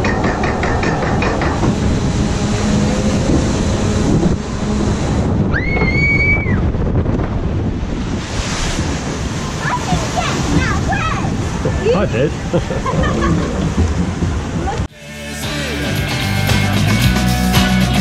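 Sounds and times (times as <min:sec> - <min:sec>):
rush of wind and water: 0:00.0 - 0:14.9
high squeal: 0:05.5 - 0:06.6.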